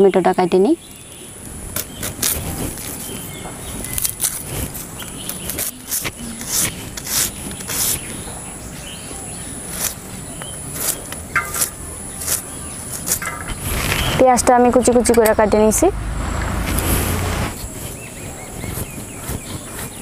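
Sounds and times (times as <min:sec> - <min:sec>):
insects chirring: 0:00.0 - 0:20.0
onion crackling under a blade: 0:00.8 - 0:08.3, 0:09.5 - 0:14.2.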